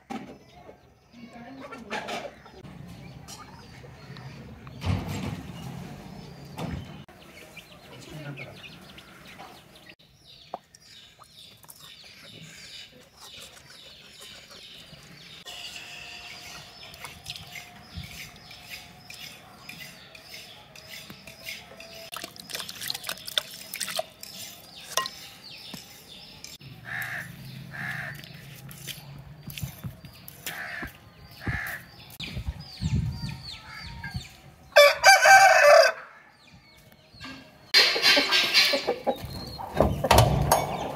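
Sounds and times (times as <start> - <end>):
small birds chirping: 0.3 - 34.8, 36.4 - 40.9
water splashing and dripping: 22.0 - 25.2
crow cawing: 26.8 - 28.2.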